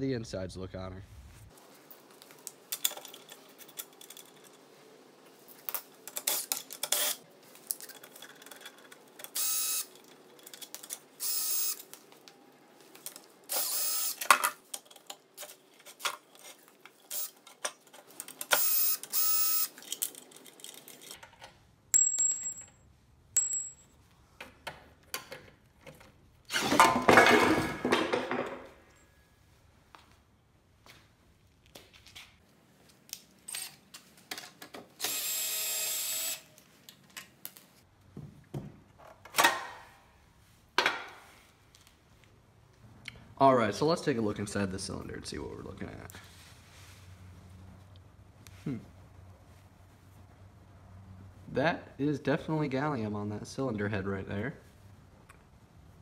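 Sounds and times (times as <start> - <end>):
cordless drill whirring: 9.3 - 9.9, 11.2 - 11.8, 13.5 - 14.2, 17.1 - 17.4, 18.5 - 19.7, 35.0 - 36.5
metal bolts clinking on concrete: 19.8 - 24.0.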